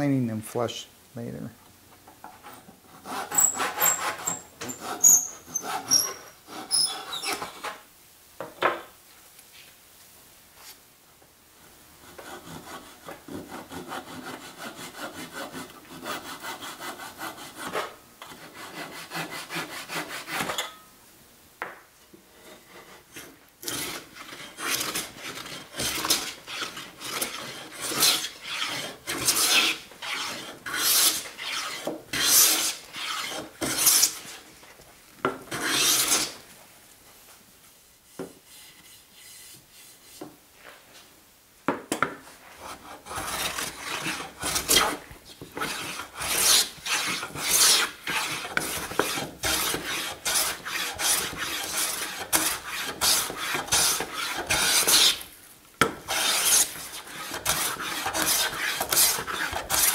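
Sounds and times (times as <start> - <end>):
hand saw cutting wood: 2.9 - 7.8, 12.1 - 20.6, 22.8 - 34.4, 35.5 - 36.4, 42.6 - 59.9
hand plane shaving wood: 23.6 - 34.3, 35.5 - 36.4, 42.6 - 55.2, 56.0 - 59.9.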